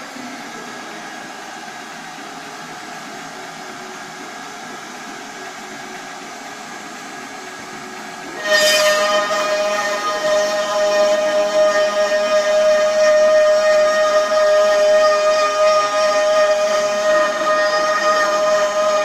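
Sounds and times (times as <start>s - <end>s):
router spindle whining: 7.7s - 19.0s.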